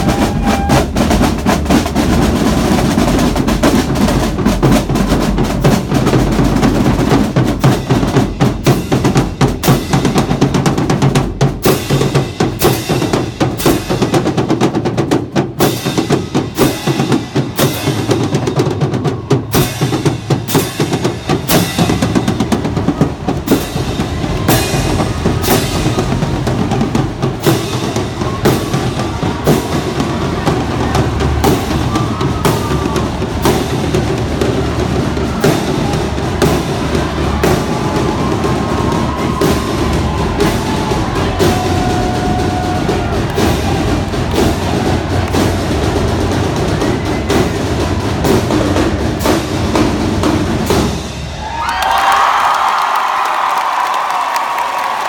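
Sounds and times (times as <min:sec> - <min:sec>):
cymbals: 0:00.0 - 0:51.6
bass drums: 0:00.0 - 0:53.8
snare drums: 0:00.0 - 0:55.0.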